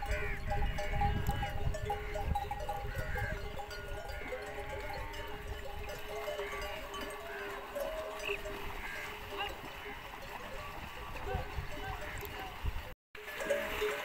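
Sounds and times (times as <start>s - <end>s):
wind rumble on microphone: 0.0s - 6.2s, 10.3s - 12.9s
camels bleating: 0.0s - 12.6s
animal bells ringing: 0.0s - 14.0s.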